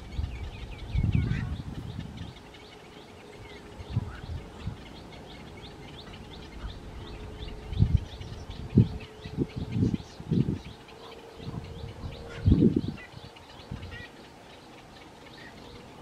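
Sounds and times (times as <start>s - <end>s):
faint steady hum: 0.0s - 16.0s
small birds chirping: 0.0s - 16.0s.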